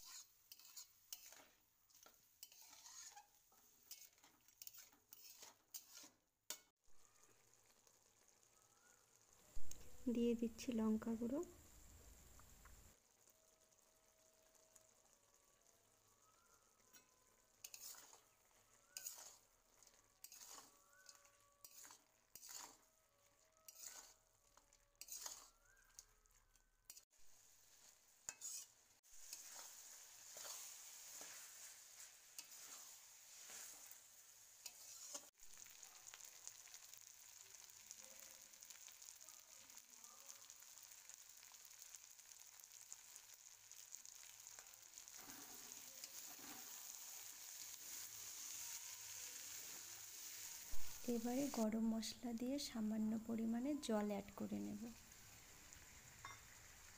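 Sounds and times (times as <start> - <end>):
metal spatula scraping a wok: 0.0 - 6.7, 17.6 - 22.9, 23.6 - 26.1, 27.6 - 35.3, 43.8 - 51.6
frying sizzle: 0.0 - 56.9.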